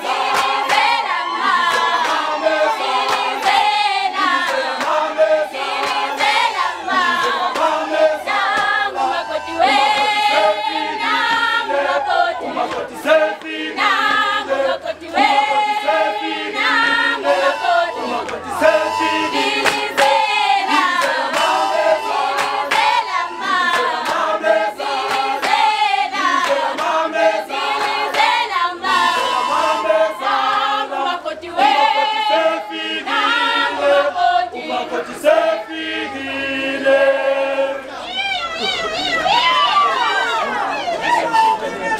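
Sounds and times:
women singing in chorus: 0.0s - 41.2s
hand claps: 0.1s - 1.0s, 1.6s - 2.3s, 2.9s - 5.1s, 5.8s - 6.4s, 7.0s - 8.8s, 19.5s - 21.6s, 22.3s - 24.3s, 25.0s - 27.0s, 27.7s - 28.4s.

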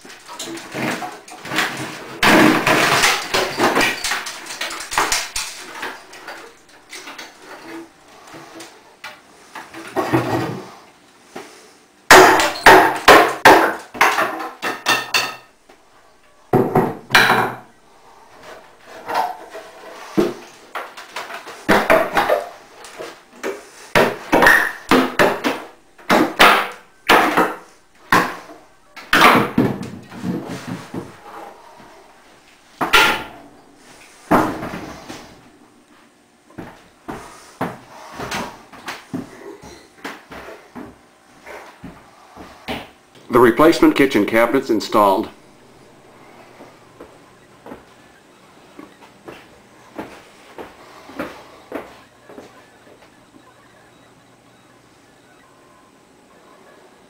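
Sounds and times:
wooden cabinet doors clacking: 16.5s - 17.7s.

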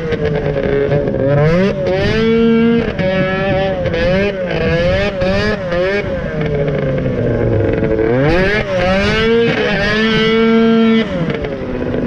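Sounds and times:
snowmobile engine revving: 0.0s - 12.0s.

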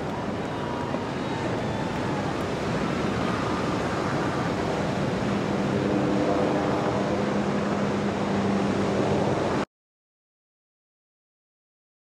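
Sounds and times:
wind on microphone: 0.0s - 9.6s
low engine hum: 0.0s - 9.7s.

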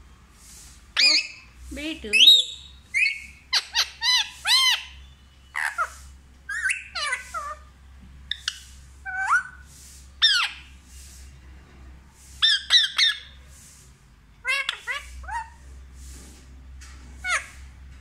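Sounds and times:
parakeet squawking: 1.0s - 7.7s, 8.3s - 9.6s, 10.2s - 10.7s, 12.4s - 13.4s, 14.4s - 15.6s, 17.2s - 17.6s.

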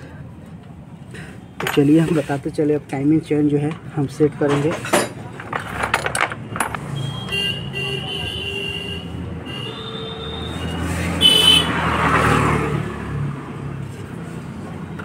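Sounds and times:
traffic engine hum: 0.0s - 15.0s
vehicle horns tooting: 6.9s - 11.8s.

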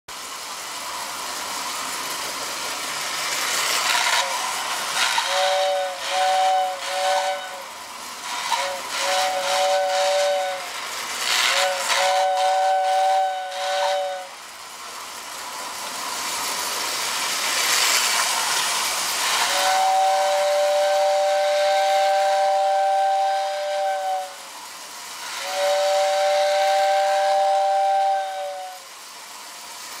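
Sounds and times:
rushing hiss: 0.1s - 30.0s
model train whistle: 3.9s - 14.5s, 19.2s - 24.6s, 25.2s - 29.1s.

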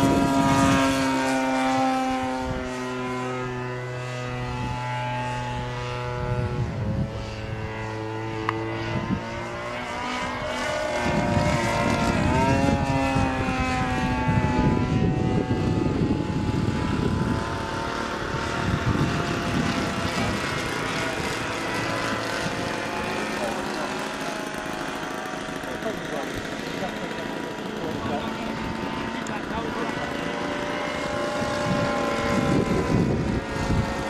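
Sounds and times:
model plane engine and propeller: 0.0s - 34.0s
gusty low rumble: 11.0s - 23.2s, 31.4s - 34.0s.

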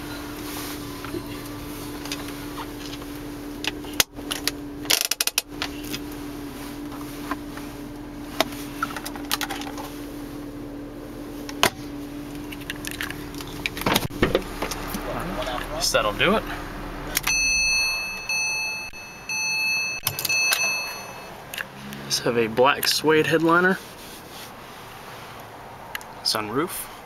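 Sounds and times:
steady hum: 0.0s - 21.5s.

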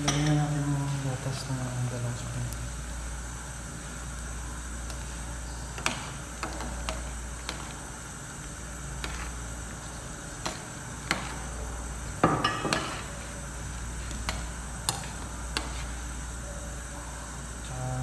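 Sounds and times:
metal spoon stirring in pot: 8.7s - 16.2s.

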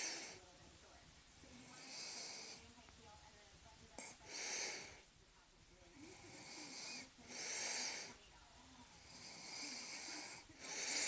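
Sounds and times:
person breathing heavily: 0.0s - 0.4s, 4.2s - 5.1s, 6.1s - 8.2s, 9.2s - 11.0s
thin whistle on breaths: 6.6s - 8.2s.

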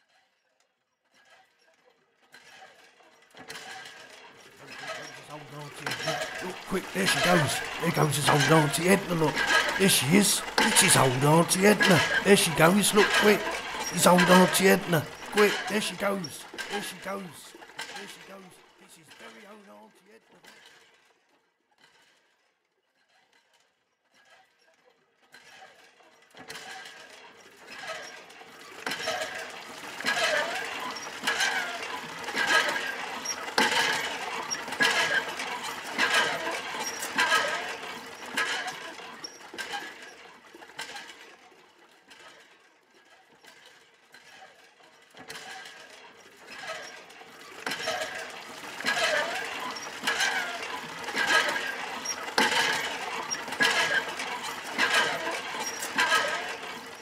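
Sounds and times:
railway trolley clanking and squeaking: 4.5s - 9.8s, 13.0s - 17.1s, 28.8s - 40.2s, 46.5s - 57.0s.

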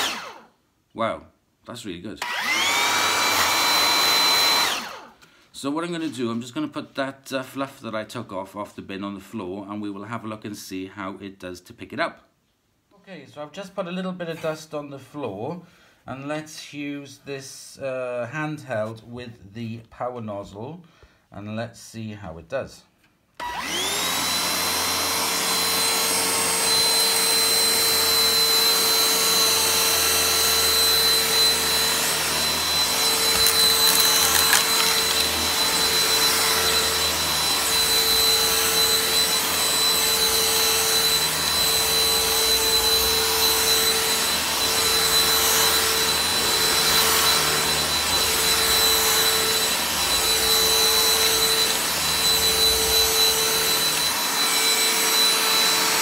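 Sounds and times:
handheld vacuum on carpet: 0.0s - 0.5s, 2.2s - 5.2s, 23.4s - 56.0s.

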